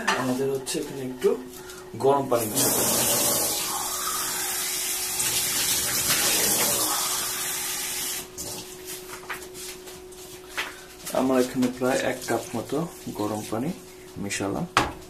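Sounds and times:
water running: 0.7 - 8.8, 11.1 - 14.4.

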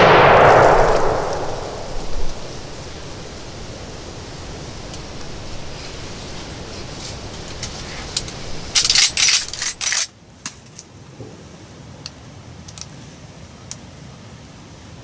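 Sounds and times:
rifle metallic clatter: 0.0 - 10.1
light rifle clicks: 4.4 - 10.1.

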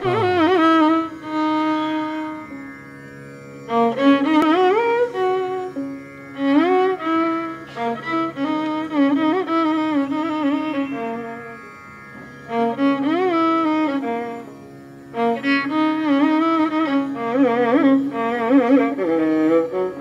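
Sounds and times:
steady drone: 0.0 - 2.4
string instrument melody: 0.0 - 20.0.

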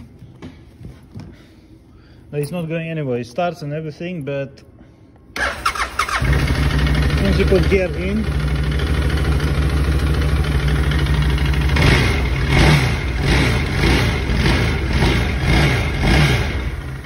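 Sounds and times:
quad engine idling and revving: 6.1 - 17.0.

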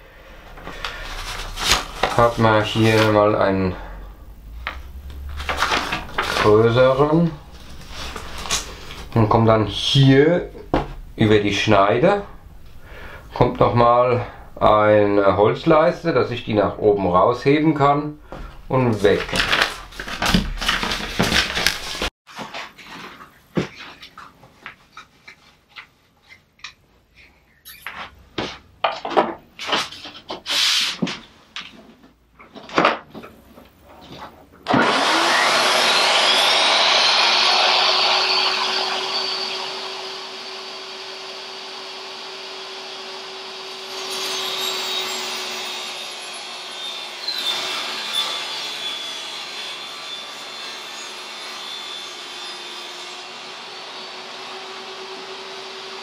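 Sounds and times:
saw cutting plywood: 0.6 - 3.9, 4.8 - 10.9, 34.6 - 56.0
table saw motor whining: 3.9 - 11.2, 34.7 - 56.0.

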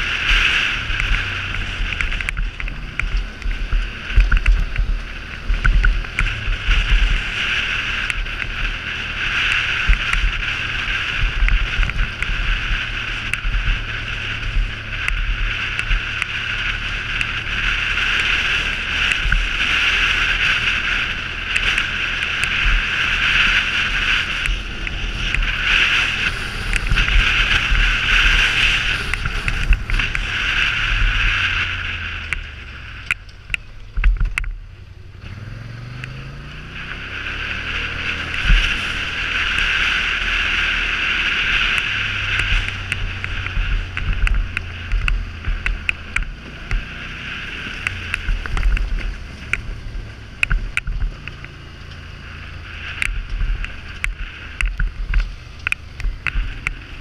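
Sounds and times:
tyres crunching over gravel: 0.0 - 34.3
atv engine running: 0.0 - 57.0.

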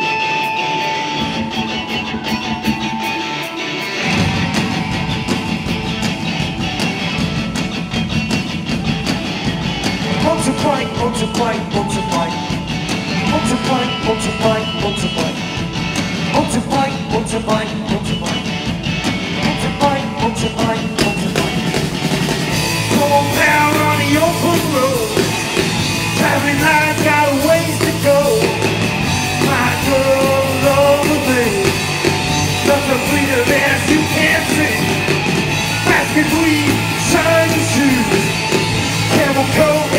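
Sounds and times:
bass guitar: 0.0 - 39.9
drum kit: 0.0 - 39.9
electric guitars: 0.0 - 39.9
person singing: 10.0 - 15.6, 19.4 - 21.8, 22.8 - 25.4, 26.0 - 39.9.

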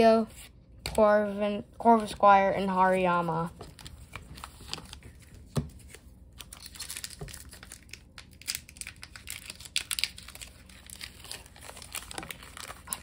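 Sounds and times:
foil wrapper crinkling: 6.4 - 13.0.

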